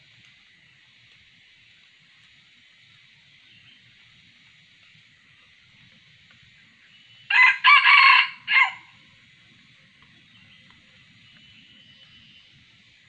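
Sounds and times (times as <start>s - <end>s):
faint high hiss: 0.0s - 13.0s
rooster crowing: 7.3s - 8.9s.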